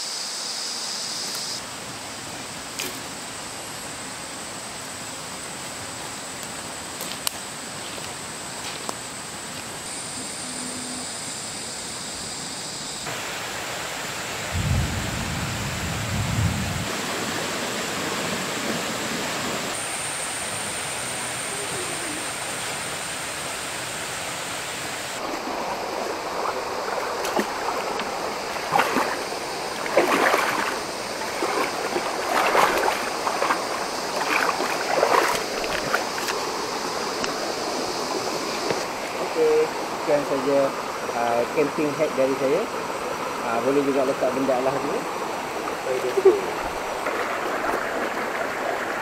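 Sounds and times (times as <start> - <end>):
river rushing over rocks: 22.2 - 49.0
water splashing against rock: 25.2 - 36.4, 45.6 - 49.0.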